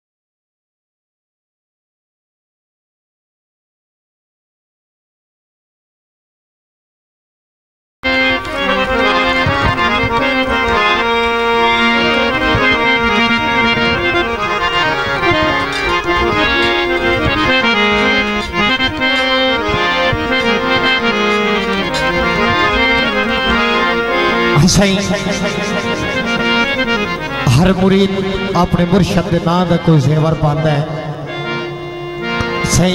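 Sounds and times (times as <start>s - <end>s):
harmonium melody: 8.0s - 32.9s.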